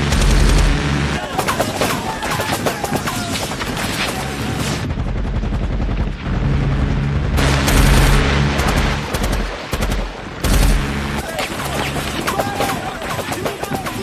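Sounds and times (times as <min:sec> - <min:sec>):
low steady drone: 0:00.0 - 0:01.2, 0:04.4 - 0:12.2.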